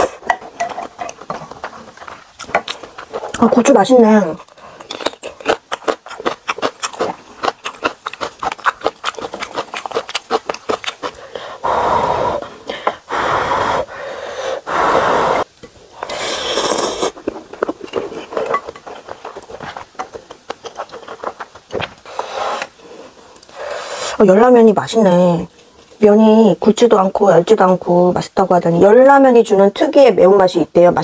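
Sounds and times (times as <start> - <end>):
wet chewing and lip-smacking: 4.4 - 11.4, 16.0 - 23.5
noodle slurps: 16.0 - 19.7.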